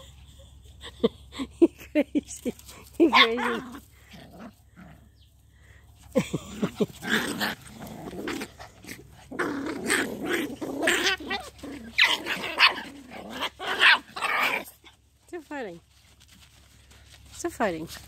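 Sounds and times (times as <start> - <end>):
puppies growling: 3.1 - 15.0.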